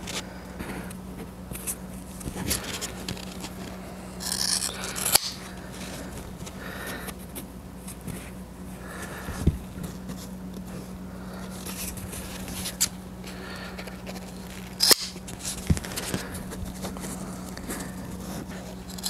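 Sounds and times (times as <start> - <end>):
steady low hum: 0.0 - 19.0
scissors cutting foam rubber: 4.2 - 5.5, 14.0 - 16.2.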